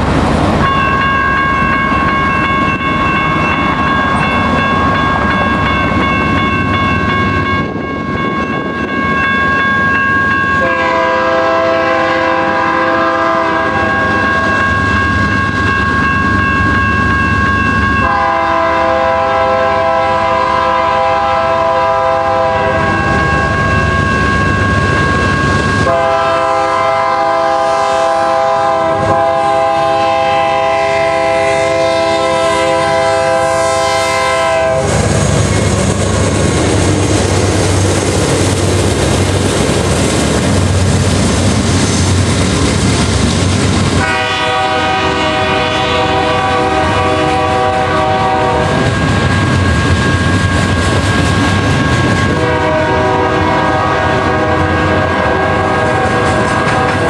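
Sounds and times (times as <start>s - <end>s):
passing train rumble and clatter: 0.0s - 57.0s
locomotive air horn blasts: 10.6s - 14.2s, 18.0s - 23.0s, 25.8s - 35.1s, 44.0s - 48.9s, 52.3s - 57.0s.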